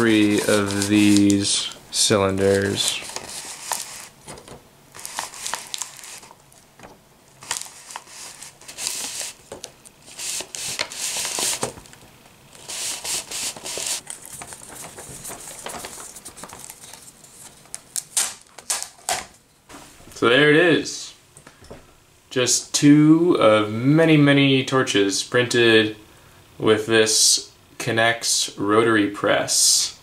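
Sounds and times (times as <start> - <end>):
paper rustling through press: 0.0 - 19.4.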